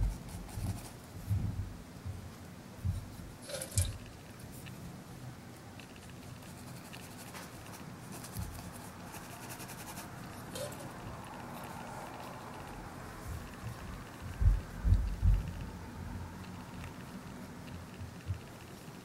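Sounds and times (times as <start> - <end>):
low steady room noise: 0.0 - 19.0
small ticks: 5.7 - 19.0.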